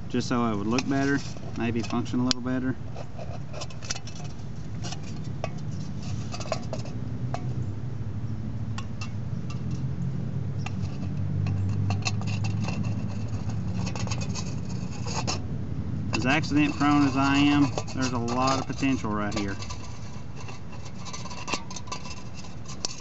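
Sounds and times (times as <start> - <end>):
can metal clicking and crinkling: 0.2 - 7.5, 10.6 - 15.4, 16.1 - 23.0.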